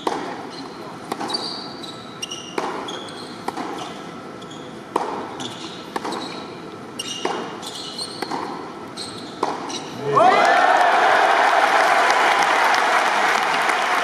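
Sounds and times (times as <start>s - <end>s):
tennis ball bouncing: 0.0s - 0.4s, 1.0s - 1.6s, 2.2s - 3.9s, 4.9s - 8.7s, 9.3s - 9.9s
tennis racket strokes: 0.0s - 10.0s
shoes squeaking on court: 0.4s - 10.0s.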